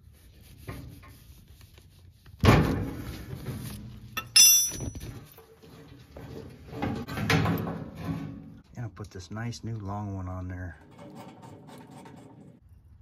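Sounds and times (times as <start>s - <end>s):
ringing metallic clink: 4.2s - 5.0s
handling of metal fitting: 4.2s - 5.2s.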